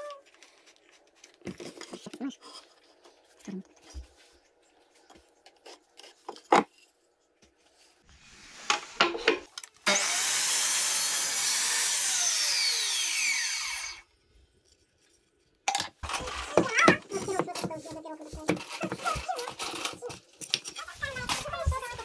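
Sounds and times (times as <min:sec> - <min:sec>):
mitre saw cutting wood: 0:09.8 - 0:14.0
saw blade winding down: 0:09.8 - 0:14.0.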